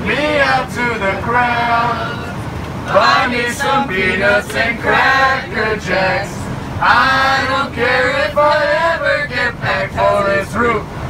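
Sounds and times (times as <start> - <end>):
aircraft cabin hum: 0.0 - 11.0
passengers singing in unison: 0.0 - 11.0.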